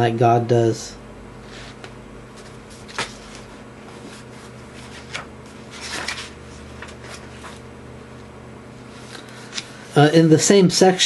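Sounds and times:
low electrical hum: 0:00.0 - 0:11.0
paper rustling: 0:01.5 - 0:07.7, 0:08.9 - 0:10.0.

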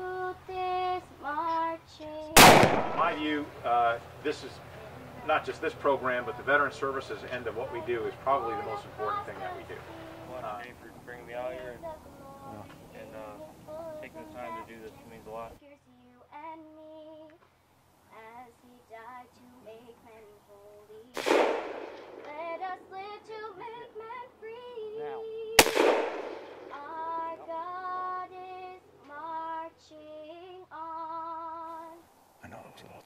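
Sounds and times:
person singing with vibrato: 0:00.0 - 0:15.5, 0:22.2 - 0:25.6, 0:26.7 - 0:32.0
loud gunshots: 0:02.4 - 0:03.6, 0:21.2 - 0:22.3, 0:25.6 - 0:26.8.

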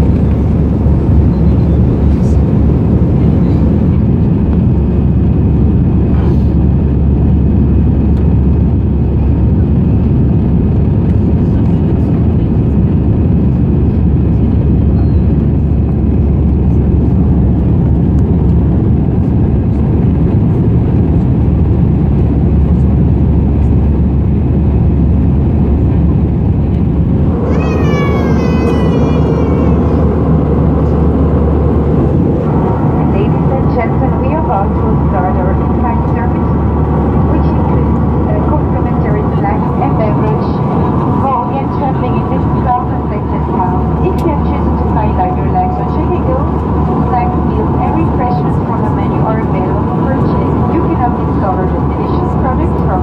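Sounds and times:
jet engine roar in cabin: 0:00.0 - 0:53.0
rushing airflow: 0:00.0 - 0:53.0
high wavering voice-like sound: 0:27.3 - 0:30.1.

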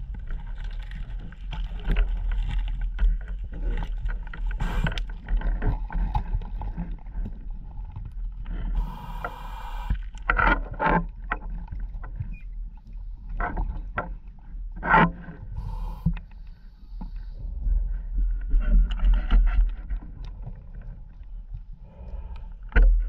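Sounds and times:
steady low hum: 0:08.5 - 0:10.2.

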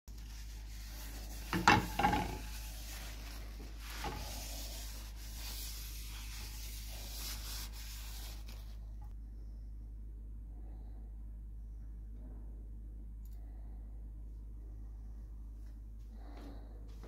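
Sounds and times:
paper towel wiping a frying pan: 0:00.1 - 0:08.8.

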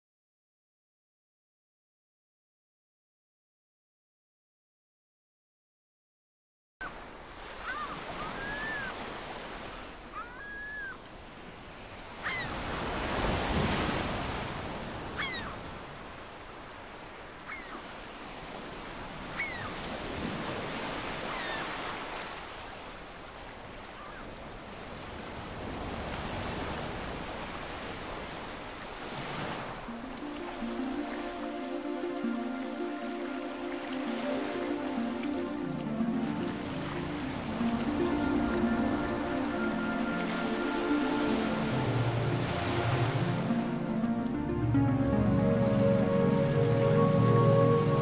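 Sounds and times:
waves breaking: 0:06.8 - 0:48.0
short bird calls: 0:07.6 - 0:09.0, 0:15.2 - 0:15.6, 0:17.5 - 0:17.9.

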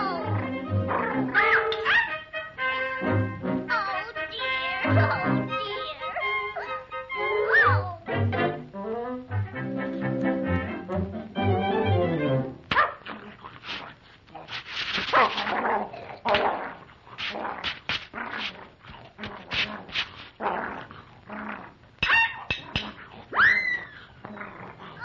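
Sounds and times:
orchestral music: 0:00.0 - 0:01.5, 0:02.1 - 0:12.7.

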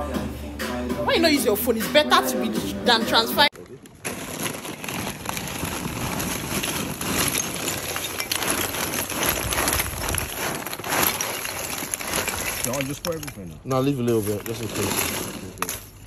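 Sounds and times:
paper sack rustling: 0:03.9 - 0:16.0
charcoal lumps clattering: 0:04.0 - 0:16.0.

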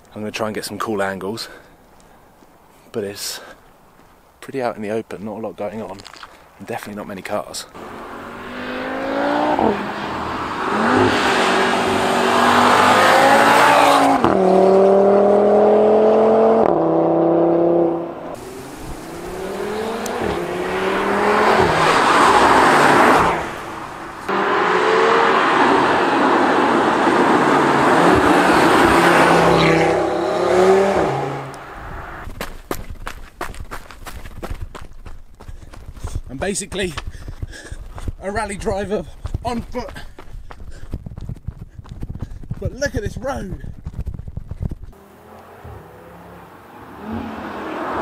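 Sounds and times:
footsteps on gravel: 0:03.6 - 0:04.2, 0:05.8 - 0:06.4, 0:32.2 - 0:45.0
car engine accelerating hard: 0:07.8 - 0:32.2, 0:44.9 - 0:48.0.

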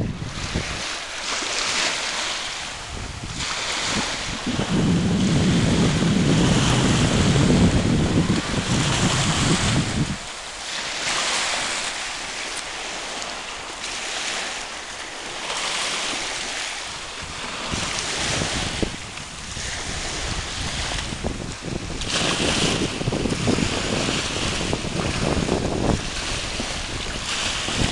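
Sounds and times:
wind buffeting microphone: 0:00.0 - 0:13.2, 0:13.9 - 0:27.9
small waves washing on shore: 0:00.0 - 0:27.9.

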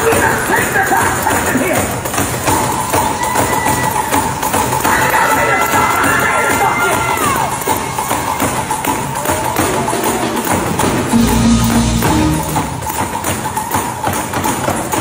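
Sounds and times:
tambourine beat: 0:00.0 - 0:15.0
live gospel music: 0:09.5 - 0:13.9
low bass note: 0:11.1 - 0:13.2.

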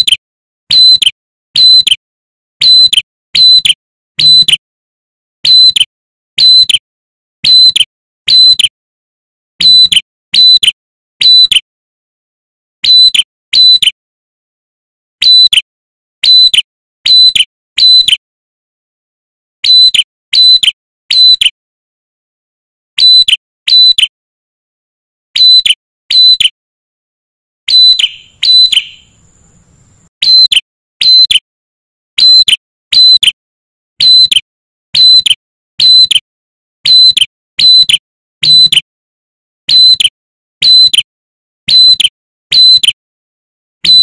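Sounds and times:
bird whistled call: 0:00.7 - 0:02.0, 0:02.6 - 0:04.6, 0:05.4 - 0:06.8, 0:07.4 - 0:08.7, 0:09.6 - 0:10.6, 0:11.2 - 0:11.6, 0:12.8 - 0:13.9, 0:15.2 - 0:15.6, 0:16.2 - 0:18.2, 0:19.6 - 0:21.5, 0:23.0 - 0:24.1, 0:25.4 - 0:26.5, 0:27.7 - 0:31.4, 0:32.2 - 0:33.2, 0:34.0 - 0:34.4, 0:35.0 - 0:36.1, 0:36.9 - 0:38.8, 0:39.7 - 0:41.0, 0:41.7 - 0:42.8.

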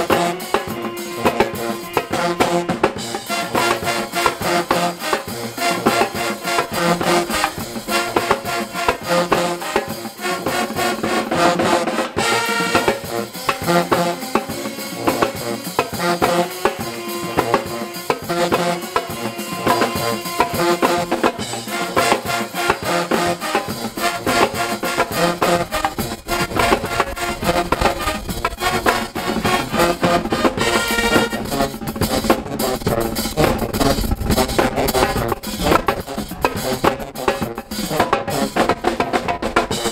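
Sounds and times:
marching tenor drums: 0:00.0 - 0:39.9
pep band playing upbeat tune: 0:00.0 - 0:39.9.

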